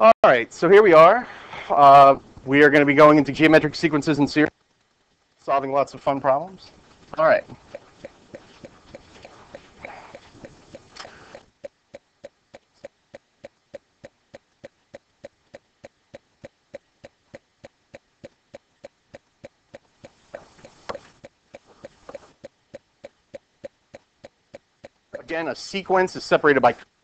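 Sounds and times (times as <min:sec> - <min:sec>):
steady ticking: 0:01.8 - 0:27.0
soft rustle: 0:04.6 - 0:11.5.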